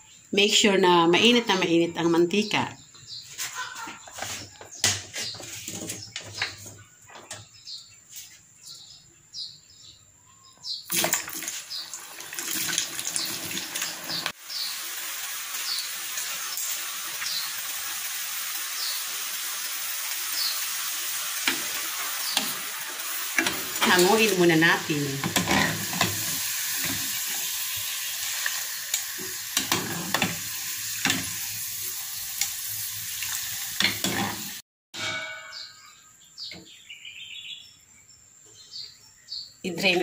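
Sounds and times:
fries sizzling in hot oil: 0:10.9 - 0:34.6.

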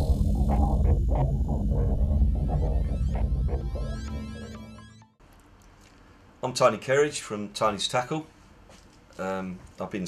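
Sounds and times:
theme music: 0:00.0 - 0:05.2.

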